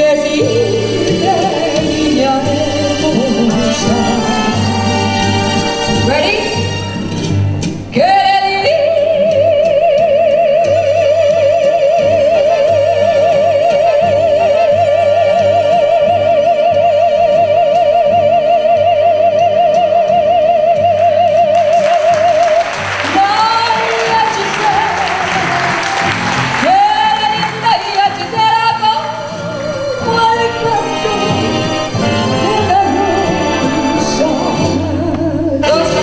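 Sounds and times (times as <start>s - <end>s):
woman singing a long high note: 0.0s - 5.2s, 26.6s - 36.0s
applause: 21.6s - 29.8s.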